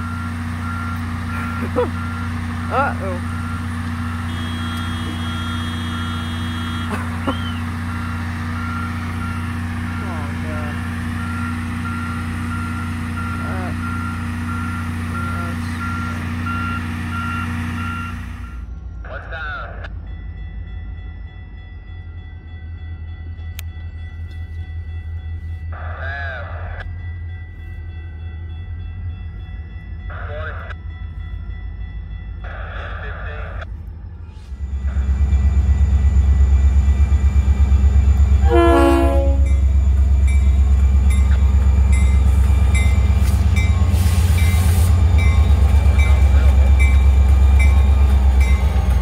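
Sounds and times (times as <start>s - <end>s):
diesel engine running: 0.0s - 19.5s
diesel locomotive engine rumbling: 0.0s - 49.0s
backup alarm beeping: 3.1s - 10.1s, 11.0s - 18.6s.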